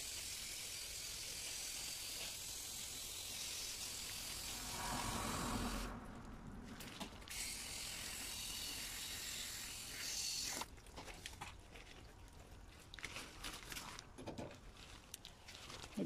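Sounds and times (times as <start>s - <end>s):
hose nozzle spray hissing: 0.0s - 5.9s.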